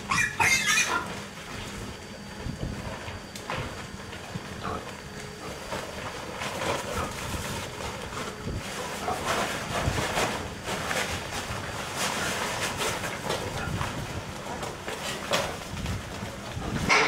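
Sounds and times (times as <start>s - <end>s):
pigs squealing: 0.0s - 1.3s.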